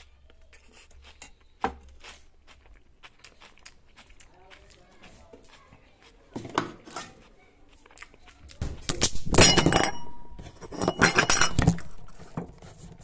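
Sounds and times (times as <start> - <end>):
glass and hard items clinking: 9.3 - 12.2.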